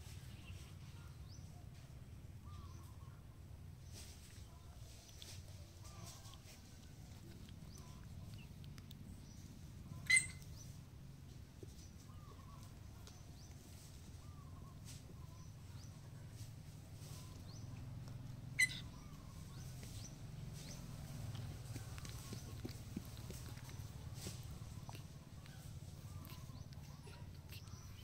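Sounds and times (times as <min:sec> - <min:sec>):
low steady hum: 0:00.0 - 0:28.0
faint small squeaks: 0:03.8 - 0:10.8, 0:17.0 - 0:28.0
high-pitched animal chirps: 0:09.9 - 0:10.6, 0:18.6 - 0:19.1.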